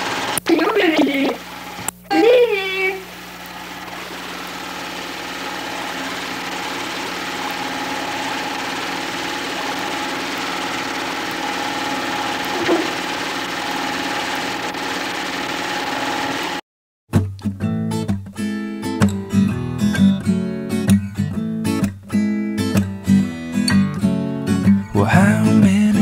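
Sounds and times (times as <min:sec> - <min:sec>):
film projector motor whirring: 0:00.0 - 0:00.4, 0:01.3 - 0:02.1, 0:03.0 - 0:16.6.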